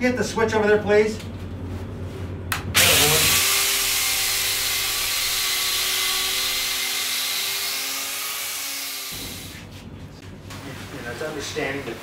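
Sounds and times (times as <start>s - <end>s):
power sander motor whir: 2.8s - 8.1s.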